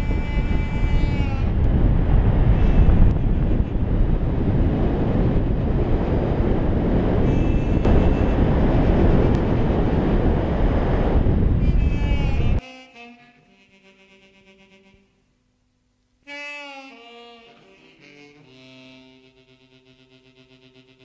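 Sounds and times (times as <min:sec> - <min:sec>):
wind buffeting microphone: 0:00.0 - 0:12.6.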